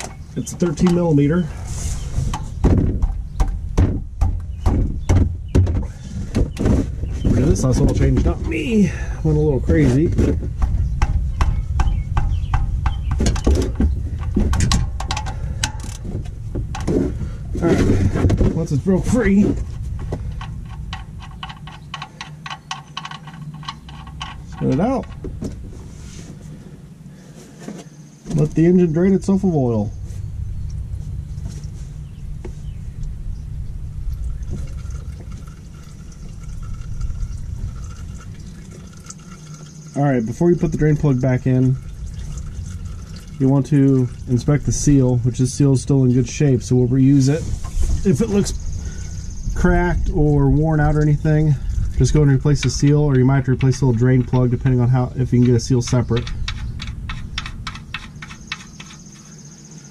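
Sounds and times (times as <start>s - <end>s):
steady low rumble: 0.0s - 59.9s
oil draining into pan: 34.0s - 40.0s, 40.7s - 45.6s.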